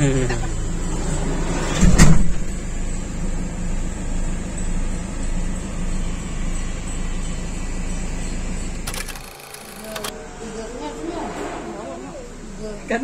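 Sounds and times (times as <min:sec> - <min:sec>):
vehicle rumble: 0:00.0 - 0:13.0.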